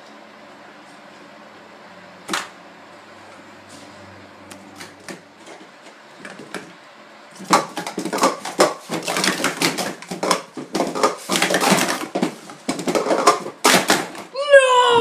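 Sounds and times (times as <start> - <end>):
plastic cups clattering: 7.4 - 14.3.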